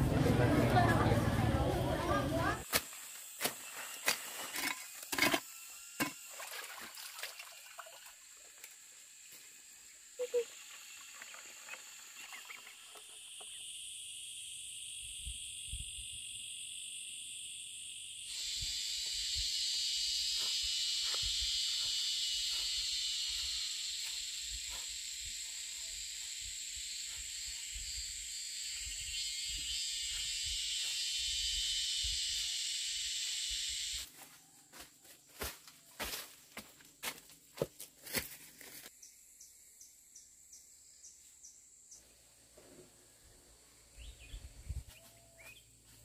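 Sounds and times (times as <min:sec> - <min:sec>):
insect chorus droning: 0:00.5 - 0:46.0.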